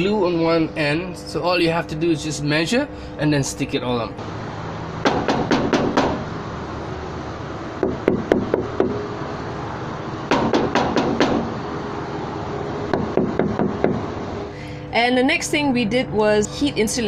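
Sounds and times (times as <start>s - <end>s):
knuckles knocking on van door: 5.0s - 6.2s, 7.8s - 9.0s, 10.3s - 11.6s, 12.9s - 14.1s.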